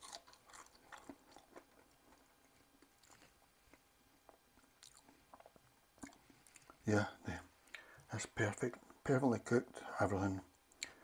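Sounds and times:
person chewing crisp fry: 0.0s - 6.8s.

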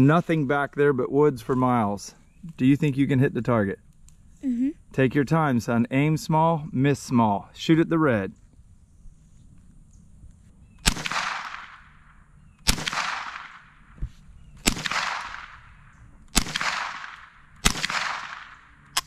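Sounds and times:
rifle shots with echo: 10.8s - 14.0s, 14.6s - 19.0s.

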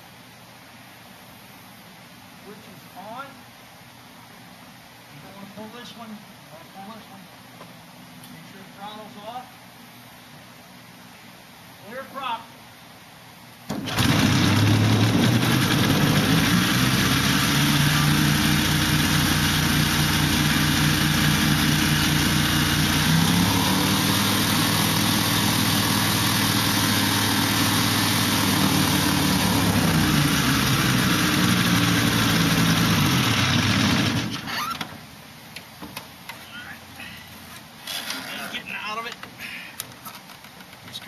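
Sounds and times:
two-stroke engine idling: 13.8s - 34.4s.

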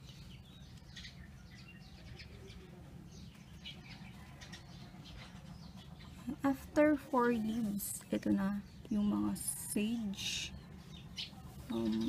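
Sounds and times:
faint bird chirps: 7.4s - 12.0s.

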